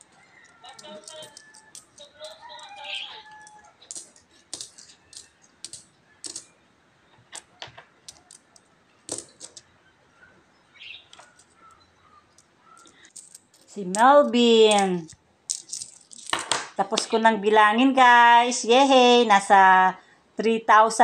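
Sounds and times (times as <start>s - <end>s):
coins clinking on wooden table: 0.0s - 6.5s, 7.2s - 9.7s, 11.1s - 17.1s.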